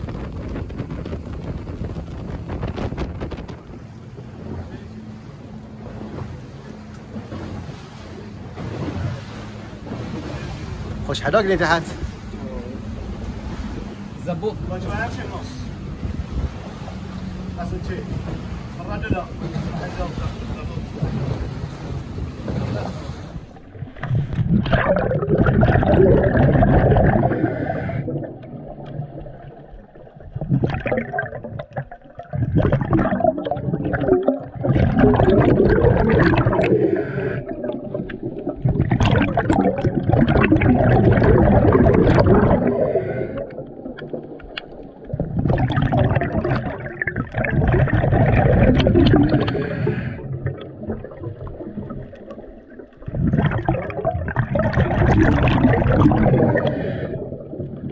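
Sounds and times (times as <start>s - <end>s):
underwater breath bubbling: 23.4s - 29.5s, 30.2s - 57.9s.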